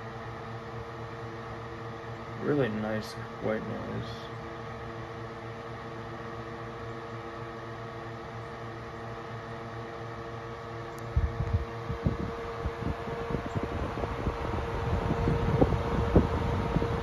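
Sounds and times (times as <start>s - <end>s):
window fan running: 0.0s - 17.0s
wind buffeting the microphone: 11.1s - 17.0s.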